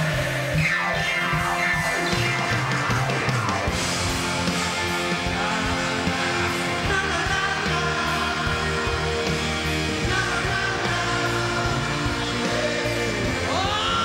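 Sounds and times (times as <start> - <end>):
live rock band playing: 0.0 - 14.0
person singing: 5.2 - 14.0.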